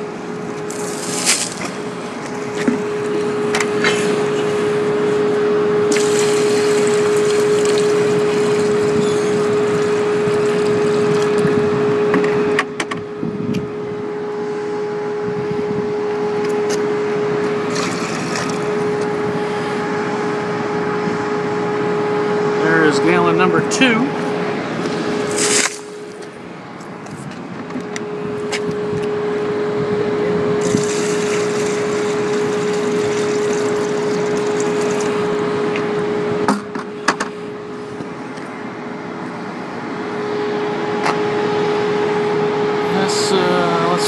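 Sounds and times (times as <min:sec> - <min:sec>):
steady hum: 0:00.0 - 0:44.0
water pouring into plastic pitcher: 0:05.9 - 0:11.4, 0:17.7 - 0:18.6, 0:30.6 - 0:35.3.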